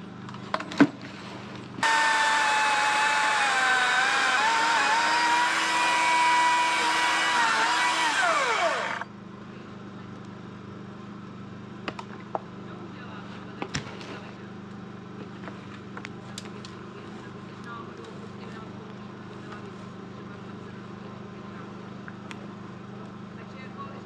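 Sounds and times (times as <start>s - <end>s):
electric chainsaw whining: 1.8s - 9.1s.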